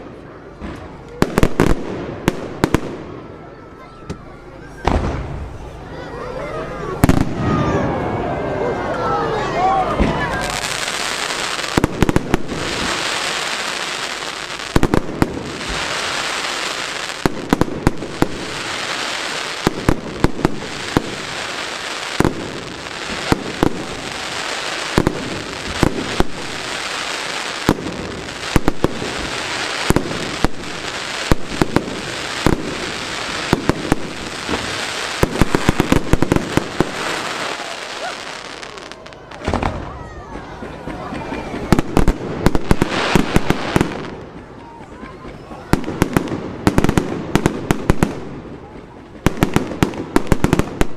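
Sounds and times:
firework bangs: 0:00.0 - 0:03.4, 0:04.0 - 0:05.8, 0:06.9 - 0:08.4, 0:09.9 - 0:44.6, 0:45.2 - 0:50.9
firework hiss: 0:10.4 - 0:39.8, 0:41.8 - 0:44.2.

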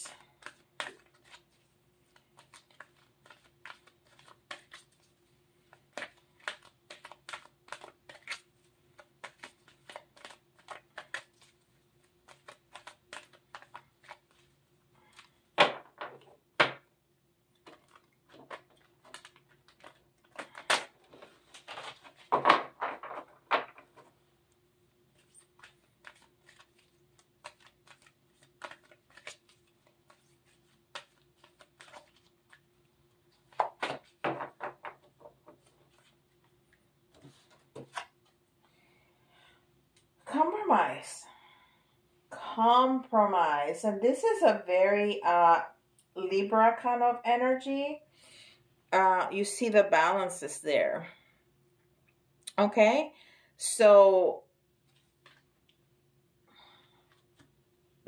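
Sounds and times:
cards being shuffled by hand: 0:00.0 - 0:16.7, 0:17.6 - 0:24.2, 0:25.1 - 0:38.4, 0:54.8 - 0:55.5, 0:57.1 - 0:57.6
faint steady hum: 0:35.4 - 0:58.0.

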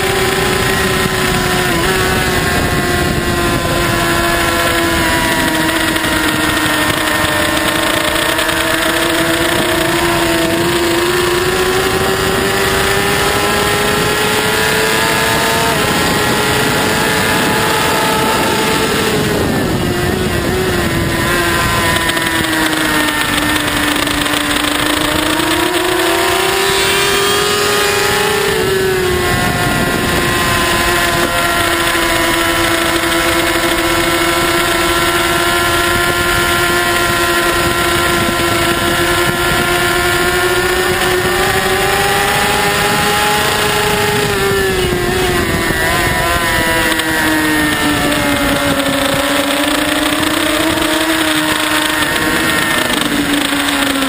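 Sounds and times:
motorcycle engine revving: 0:00.0 - 0:54.0
wind rushing: 0:00.0 - 0:54.0.

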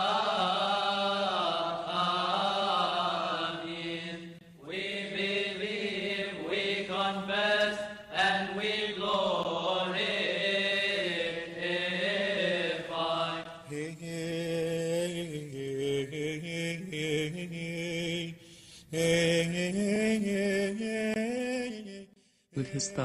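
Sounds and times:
voices chanting: 0:00.0 - 0:14.2
breaths: 0:18.4 - 0:19.0, 0:22.2 - 0:22.6.

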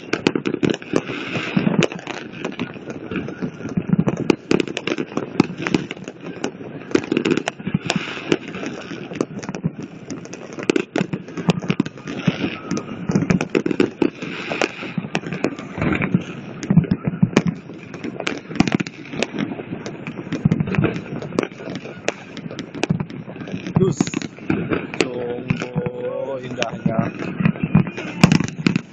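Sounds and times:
fireworks bangs and crackles: 0:00.0 - 0:28.9
hubbub of voices: 0:20.5 - 0:28.9.

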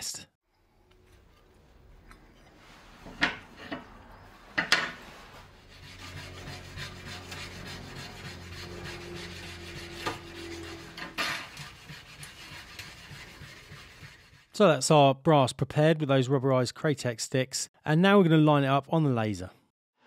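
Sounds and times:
abrasive stick rasping on brass: 0:05.6 - 0:14.5.

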